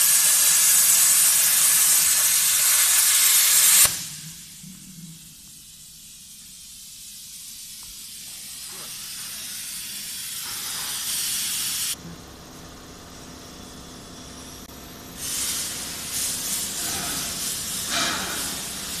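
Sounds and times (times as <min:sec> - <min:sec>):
plasma torch hissing: 0:00.0 - 0:12.0, 0:13.6 - 0:19.0
low machine hum: 0:12.0 - 0:19.0.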